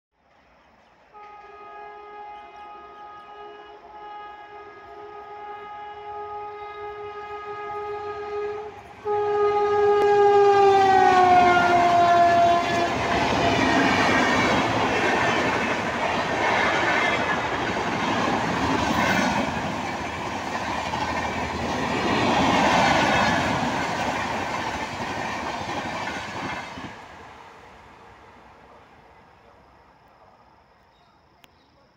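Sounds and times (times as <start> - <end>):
locomotive horn blast: 1.1 - 13.6
train wheels on rails: 7.2 - 27.9.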